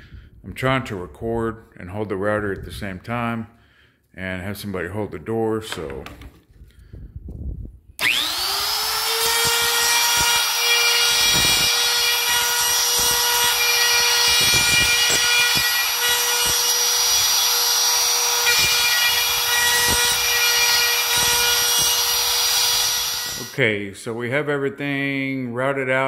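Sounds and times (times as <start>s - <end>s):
router base knocking and scraping: 5.7s - 6.6s
trim router whining: 8.0s - 23.6s.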